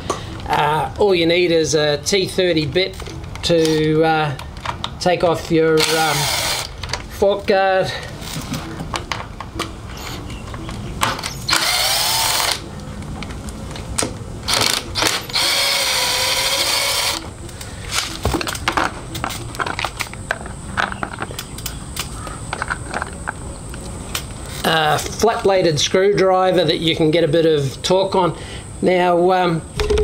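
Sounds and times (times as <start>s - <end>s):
cordless drill motor whine: 5.8s - 6.7s, 11.2s - 12.6s, 14.5s - 17.3s.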